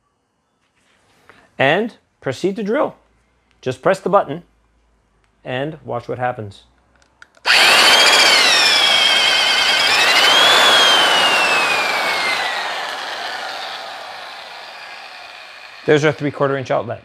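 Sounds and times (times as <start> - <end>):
drill motor whining: 7.4 - 16.4.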